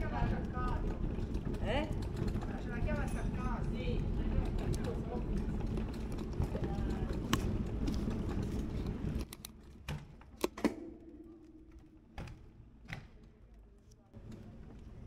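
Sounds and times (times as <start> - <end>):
quiet street ambience: 0.0 - 15.0
sharp clicks and knocks: 4.3 - 13.6.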